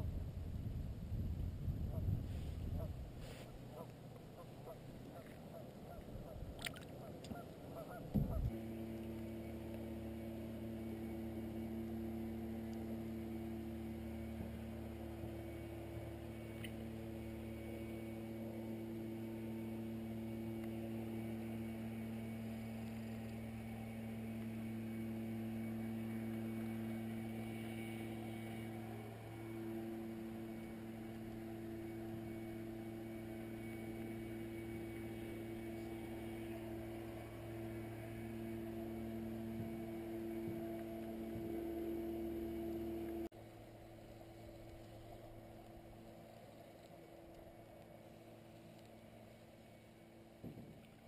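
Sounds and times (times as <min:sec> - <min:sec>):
ambient music drone: 0:02.3 - 0:51.0
ducks quacking: 0:03.7 - 0:06.4, 0:07.0 - 0:08.4.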